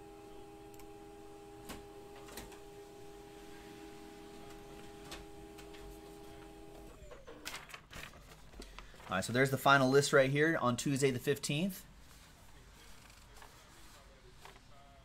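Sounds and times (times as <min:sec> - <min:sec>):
printer whining: 0:00.0 - 0:08.4.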